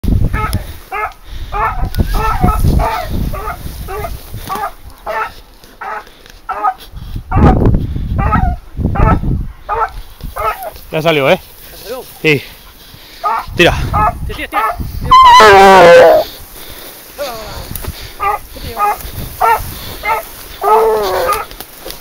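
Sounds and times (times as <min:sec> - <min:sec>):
dog barking: 0:00.3 - 0:07.6, 0:08.2 - 0:10.7, 0:13.2 - 0:14.8, 0:18.2 - 0:21.5.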